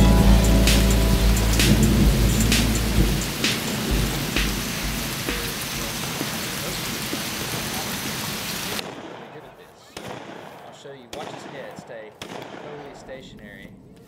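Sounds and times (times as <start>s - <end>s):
low thunder rumble: 0.0s - 6.2s
steady rain: 0.0s - 8.9s
sharp ticks: 0.6s - 5.6s.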